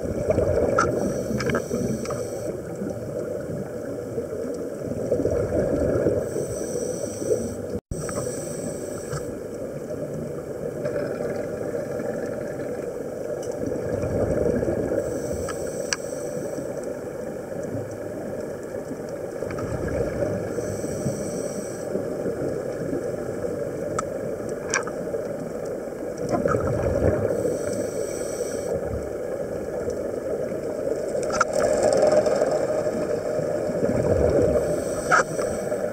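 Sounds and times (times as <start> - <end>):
exhaled bubbles rumbling: 0.0 - 6.6, 7.4 - 15.3, 16.9 - 20.8, 22.0 - 28.0, 28.7 - 35.9
muffled underwater wash: 0.0 - 35.9
regulator breathing hiss: 0.8 - 2.8, 6.2 - 9.4, 15.0 - 16.9, 20.5 - 22.1, 27.3 - 28.9, 34.6 - 35.9.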